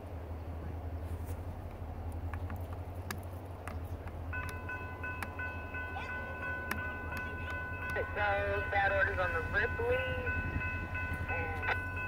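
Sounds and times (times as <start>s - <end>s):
low steady rumble: 0.0s - 12.0s
crossing warning bell ringing: 4.2s - 12.0s.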